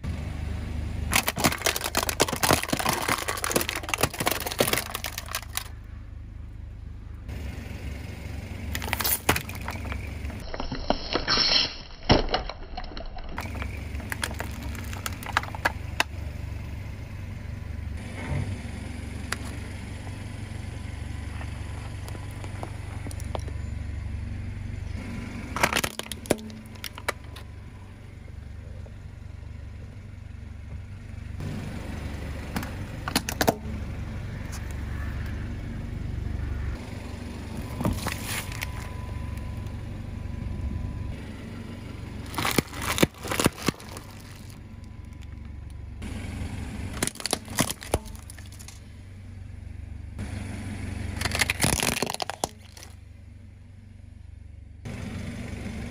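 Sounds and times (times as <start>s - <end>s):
car engine idling: 0.0s - 10.6s, 13.2s - 55.9s
tyre crushing objects: 1.1s - 5.7s, 8.8s - 11.3s, 12.0s - 16.1s, 25.5s - 27.4s, 37.7s - 38.9s, 42.2s - 44.6s, 46.9s - 48.8s, 51.2s - 53.0s.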